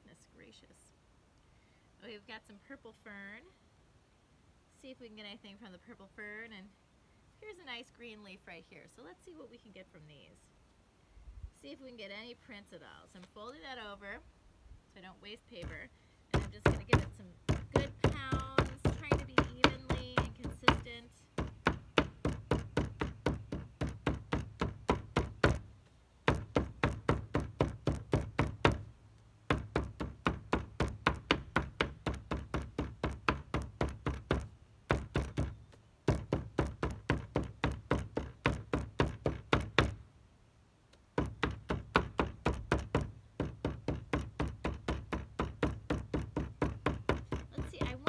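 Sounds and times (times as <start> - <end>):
mallet thudding on paper: 15.6 - 28.9, 29.5 - 40.0, 41.2 - 48.0.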